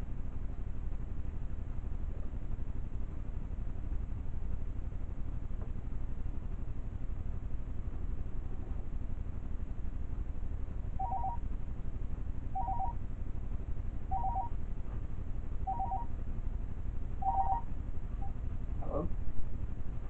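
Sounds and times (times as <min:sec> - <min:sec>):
low steady rumble: 0:00.0 - 0:20.0
two-tone electronic pips: 0:11.0 - 0:11.4, 0:12.6 - 0:13.0, 0:14.1 - 0:14.5, 0:15.7 - 0:16.1, 0:17.2 - 0:17.7.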